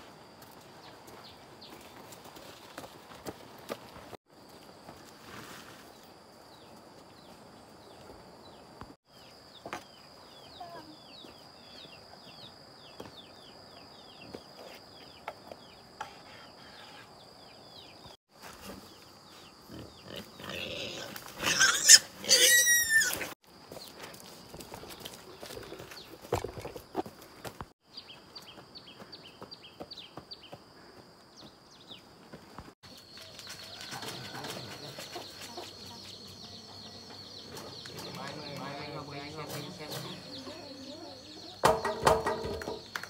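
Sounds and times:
pig squealing loudly: 0:20.4 - 0:23.3.

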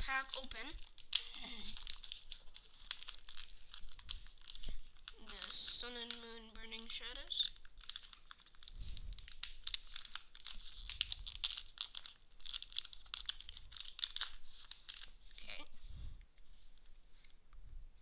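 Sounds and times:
foil wrapper tearing and crumpling: 0:00.0 - 0:15.3.

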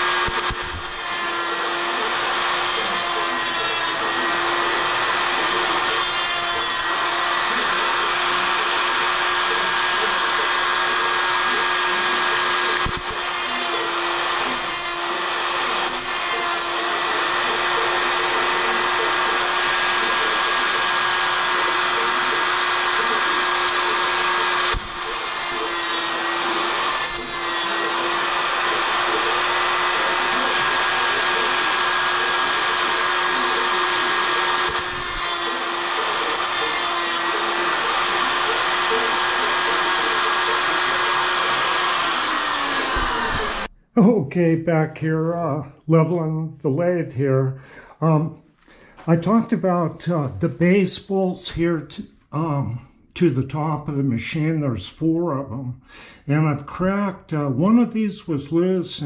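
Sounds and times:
angle grinder motor whine: 0:00.0 - 0:43.7
grinder disc biting metal: 0:00.0 - 0:43.7.

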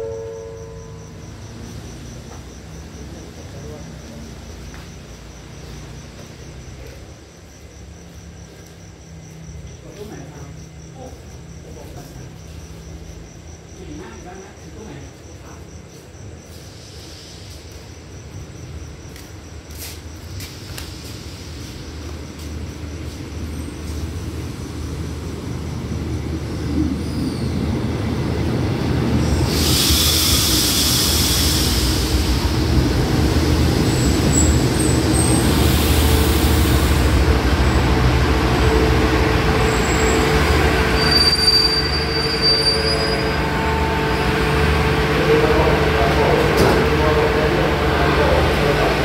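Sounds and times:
train rumbling: 0:00.0 - 0:49.0
burst of hiss: 0:16.5 - 0:17.8, 0:29.2 - 0:37.8
wheel and brake squeals: 0:38.7 - 0:44.2.

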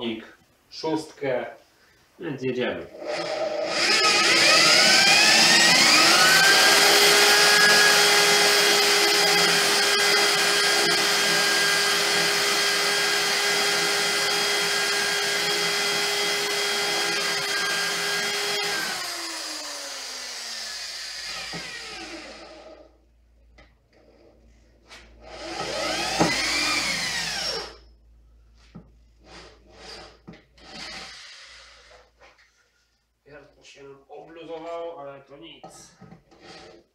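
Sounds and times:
electric drill boring into metal: 0:03.0 - 0:22.8, 0:25.2 - 0:27.8, 0:29.3 - 0:31.9.

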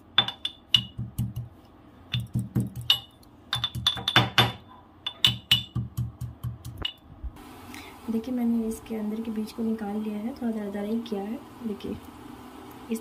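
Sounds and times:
pestle pounding in metal mortar: 0:00.2 - 0:07.0.

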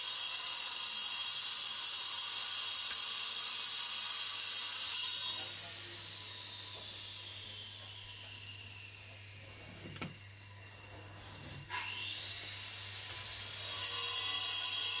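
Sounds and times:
high-pitched whine: 0:05.4 - 0:14.6.

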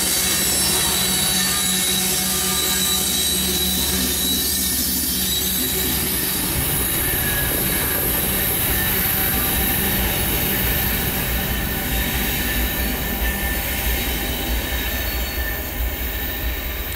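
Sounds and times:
faint high wheel squeal: 0:00.0 - 0:16.9
train rumbling past: 0:00.0 - 0:16.9.

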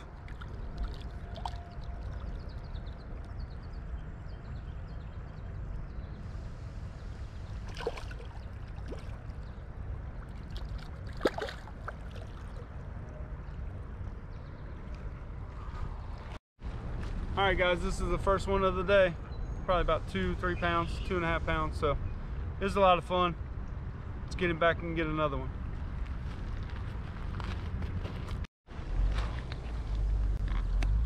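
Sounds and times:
fish splashing in water: 0:07.6 - 0:09.4, 0:10.3 - 0:12.6.

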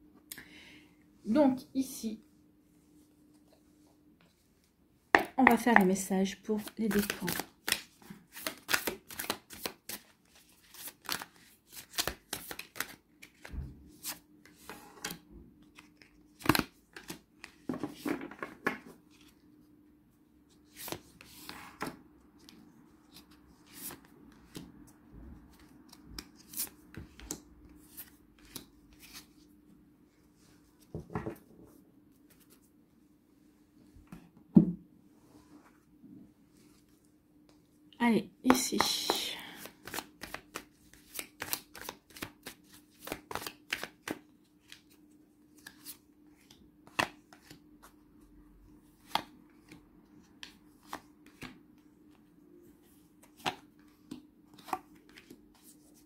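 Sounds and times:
cards riffle shuffled: 0:06.6 - 0:14.6, 0:39.6 - 0:44.9.

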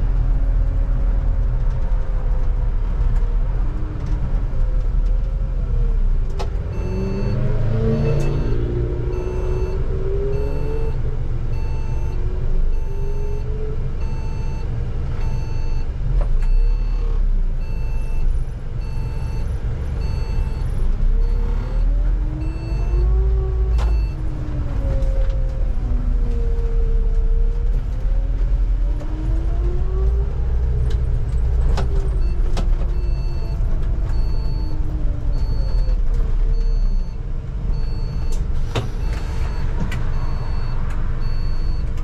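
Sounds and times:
bus engine rumble and whine: 0:00.0 - 0:42.0
short beeps: 0:06.8 - 0:08.6.

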